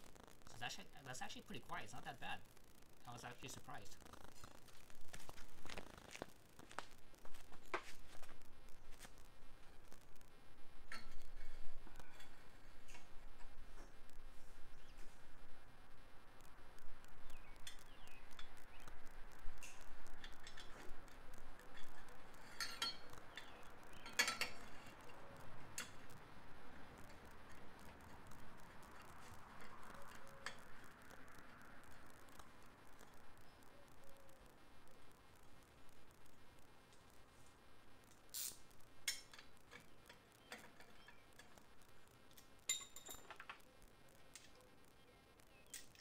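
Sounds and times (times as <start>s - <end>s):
faint metal clinks and clicks: 10.8s - 14.2s, 16.4s - 37.3s, 38.0s - 46.0s
light metallic clicks and clinks: 19.6s - 26.2s, 42.3s - 43.7s.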